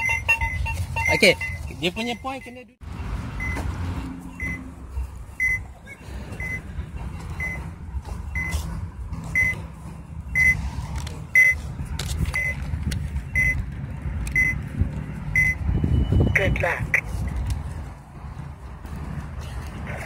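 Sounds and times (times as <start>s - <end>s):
short high beeps: 0.0s - 2.6s, 4.3s - 4.7s, 5.3s - 6.6s, 9.4s - 9.6s, 11.4s - 11.6s, 13.3s - 13.6s, 14.4s - 14.6s, 15.4s - 17.0s.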